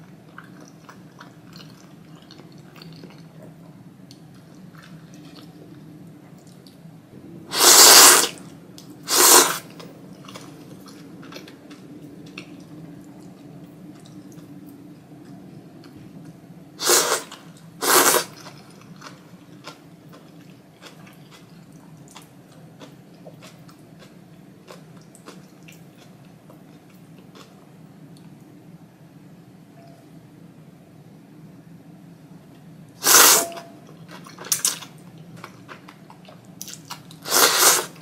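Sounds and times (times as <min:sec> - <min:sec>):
chewing noodles: 0:00.1 - 0:05.8, 0:09.1 - 0:27.6
loud slurps: 0:07.5 - 0:08.4, 0:09.1 - 0:09.8, 0:16.8 - 0:18.4, 0:33.0 - 0:33.6, 0:37.2 - 0:38.0.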